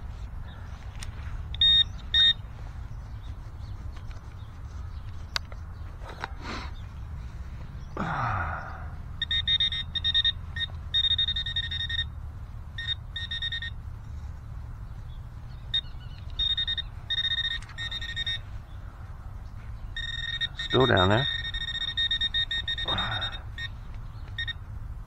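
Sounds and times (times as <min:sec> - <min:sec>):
metal detector buzzing high tone: 0:01.6 - 0:02.4, 0:09.2 - 0:12.1, 0:12.8 - 0:13.8, 0:15.8 - 0:18.5, 0:20.0 - 0:23.8, 0:24.4 - 0:24.6.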